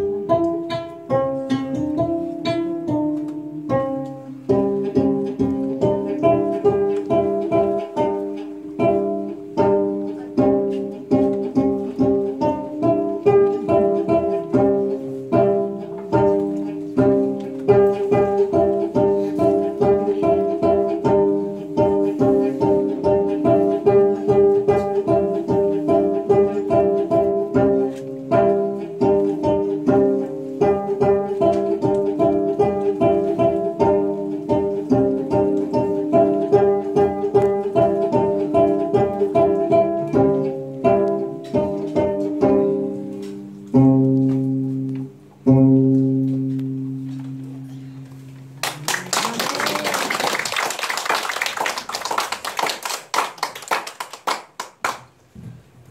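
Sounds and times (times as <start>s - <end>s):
plucked zither melody: 0.0s - 48.4s
applause: 48.6s - 55.2s.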